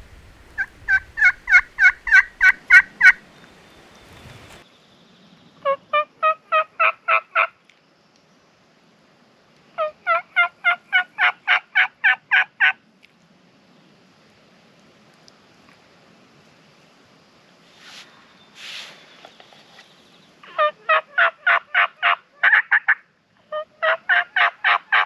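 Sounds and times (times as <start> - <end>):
turkey yelping: 0.6 - 3.2, 5.6 - 7.5, 9.8 - 12.7, 20.4 - 25.0.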